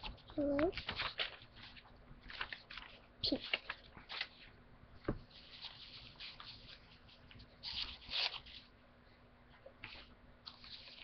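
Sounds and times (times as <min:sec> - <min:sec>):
paper rustling: 0:00.0 - 0:08.8, 0:09.5 - 0:11.0.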